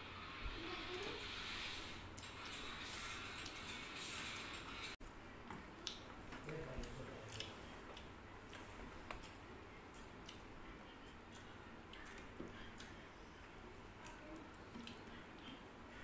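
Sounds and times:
chewing clicks and smacks: 0:05.8 - 0:06.1, 0:06.8 - 0:13.0, 0:13.9 - 0:15.6.

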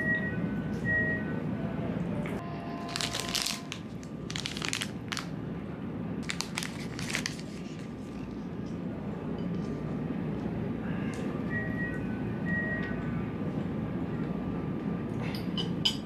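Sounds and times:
plastic wrapper crinkling: 0:02.9 - 0:05.3, 0:06.2 - 0:08.3.

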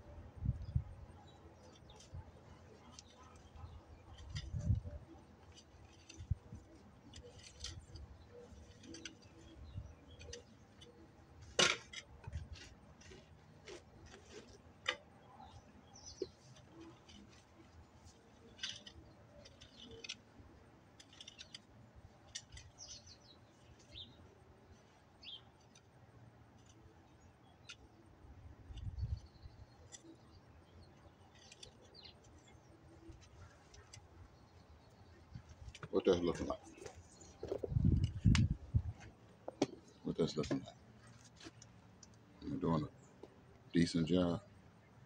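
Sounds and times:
birds chirping: 0:00.0 - 0:45.0
garden fork scraping soil: 0:02.8 - 0:11.0.

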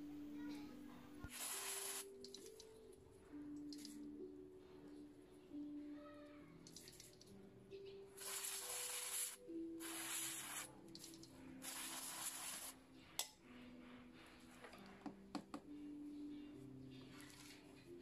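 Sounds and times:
aerosol spray hissing: 0:01.3 - 0:02.1, 0:08.2 - 0:10.7, 0:11.6 - 0:12.8.

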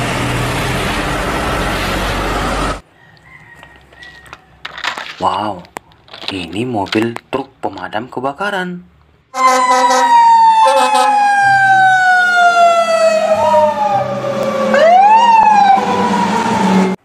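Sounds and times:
fire engine siren wailing: 0:09.3 - 0:17.0
horn blasts: 0:09.4 - 0:11.2
siren whoops: 0:09.4 - 0:17.0.

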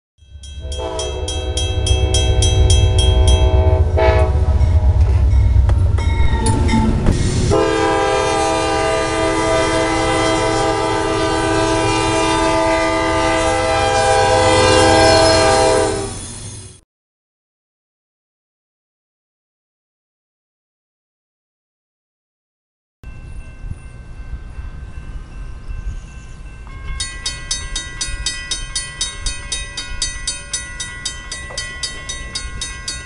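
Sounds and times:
train on rails: 0:00.2 - 0:16.8, 0:23.0 - 0:33.0
engine low rumble: 0:00.4 - 0:07.6
locomotive air horn: 0:00.6 - 0:05.6, 0:06.4 - 0:16.2.

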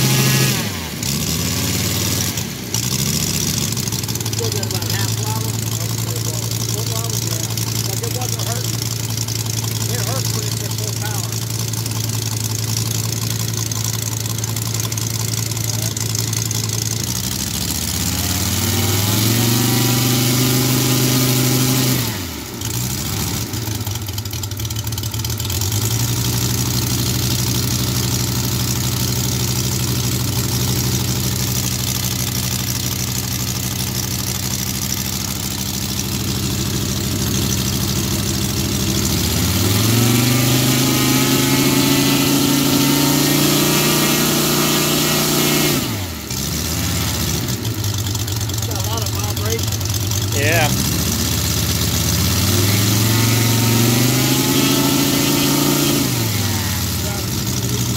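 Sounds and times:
vehicle engine revving: 0:00.0 - 0:57.9.

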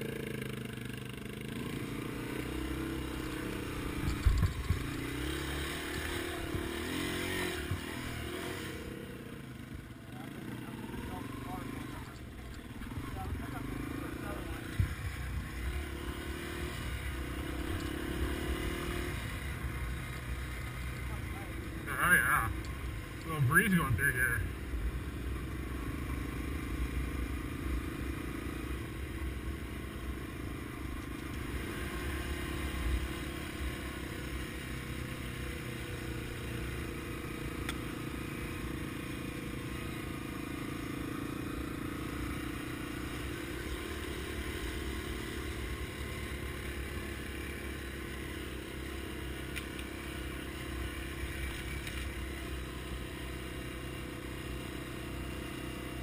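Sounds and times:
motorcycle clatter over bumps: 0:00.0 - 0:21.9, 0:25.4 - 0:54.6
motorcycle engine running: 0:00.0 - 0:56.0.

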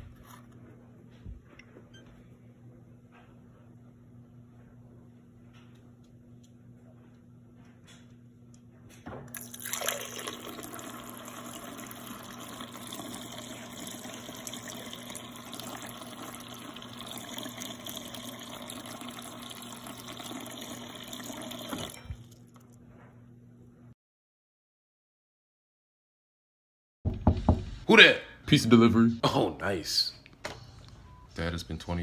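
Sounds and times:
water dispenser stream splashing: 0:09.3 - 0:22.0.

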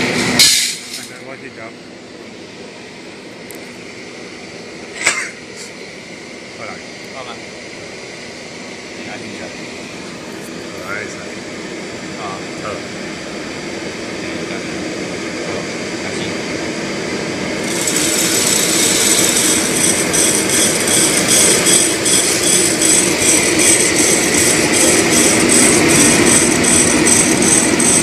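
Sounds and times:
coffee roaster motor hum: 0:00.0 - 0:28.0
loud hiss: 0:17.3 - 0:28.0.

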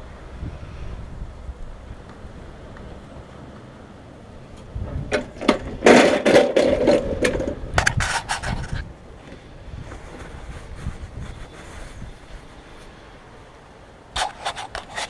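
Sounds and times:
wind rumble on microphone: 0:00.0 - 0:13.4
hands handling parts clattering: 0:05.1 - 0:08.8.

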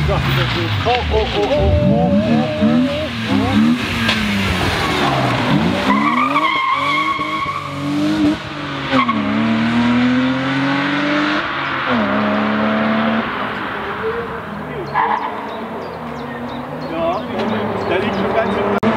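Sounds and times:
rally car accelerating past: 0:01.4 - 0:14.5
tyre squeal: 0:04.8 - 0:07.8.

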